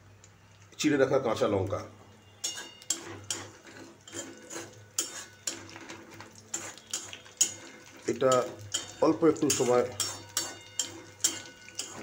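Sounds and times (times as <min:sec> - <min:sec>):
spatula scraping a pan: 0:02.4 - 0:12.0.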